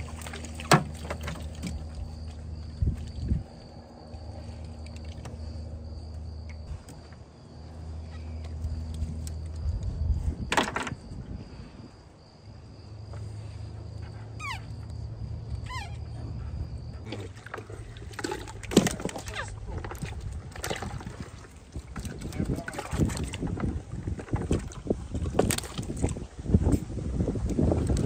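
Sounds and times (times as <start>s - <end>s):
wet net being hauled: 0.0s - 5.8s, 17.0s - 28.0s
steady low hum: 0.0s - 28.0s.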